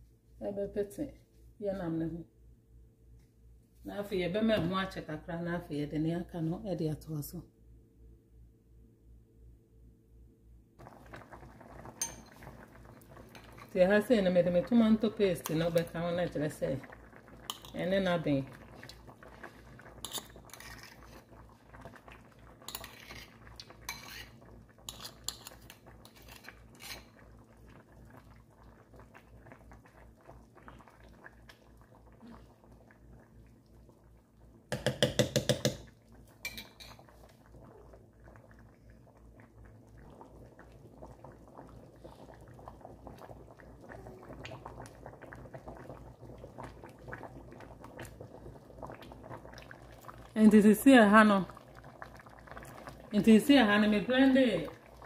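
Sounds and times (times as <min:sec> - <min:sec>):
soup bubbling: 0:10.8 - 0:55.0
spoon clinking in a pot: 0:12.0 - 0:12.4, 0:23.9 - 0:24.3, 0:24.9 - 0:27.0, 0:36.4 - 0:37.0
metal spoon scraping a bowl: 0:22.7 - 0:23.3, 0:23.9 - 0:24.3, 0:24.9 - 0:27.1
loud taps on a pot: 0:34.7 - 0:35.9.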